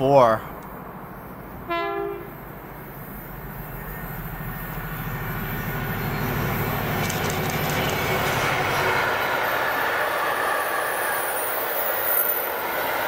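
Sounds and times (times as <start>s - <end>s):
diesel locomotive engine throbbing: 0.0s - 11.9s
train wheels clicking: 4.3s - 13.0s.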